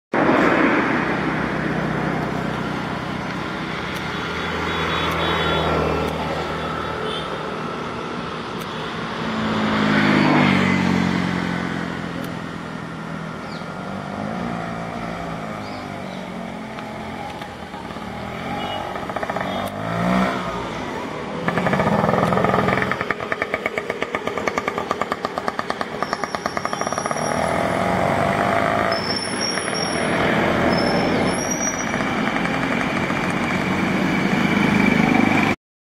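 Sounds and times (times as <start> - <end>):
road traffic passing: 0.1 - 35.6
bird chirping: 13.4 - 13.8, 15.5 - 16.5.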